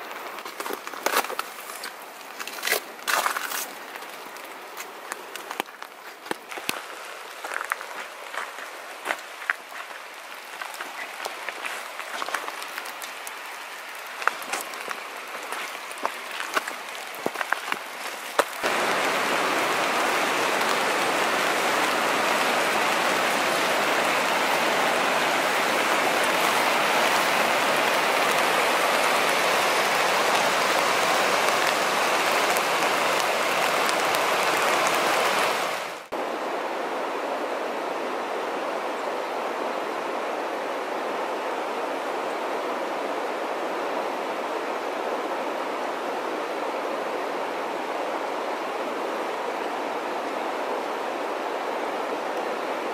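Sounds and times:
footsteps on dirt trail: 0:00.0 - 0:19.4
water rushing over rock: 0:06.5 - 0:36.7.

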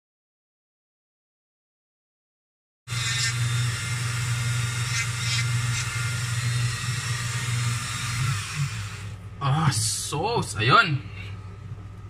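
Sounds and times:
bit scratching wood: 0:02.9 - 0:03.6, 0:04.8 - 0:09.0
rotary tool motor running: 0:02.9 - 0:09.2.

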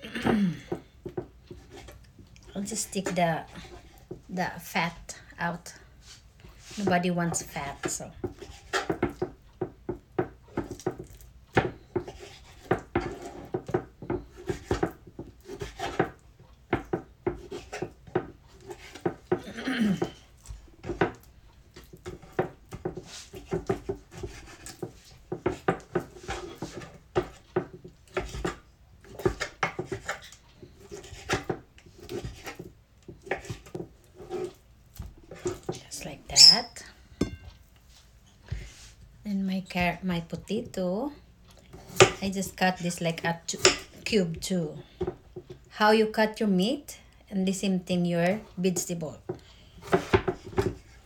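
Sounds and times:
knife slicing meat: 0:21.8 - 0:32.7.

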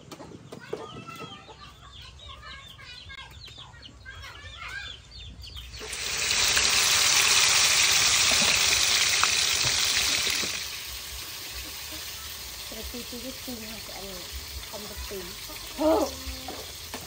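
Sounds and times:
chickens clucking: 0:00.0 - 0:17.0
fish deep frying in oil: 0:05.7 - 0:17.0.

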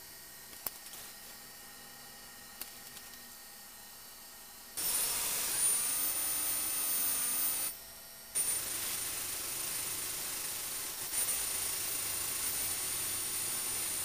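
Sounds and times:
steady machine whine: 0:00.0 - 0:14.0
hiss: 0:08.4 - 0:14.0.

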